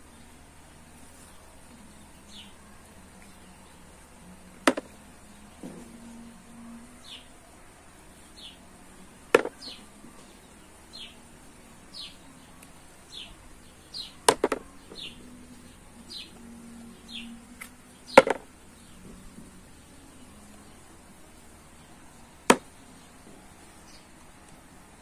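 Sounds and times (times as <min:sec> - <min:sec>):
pits dropping into plastic bowl: 0:09.4 - 0:09.6, 0:14.3 - 0:14.7.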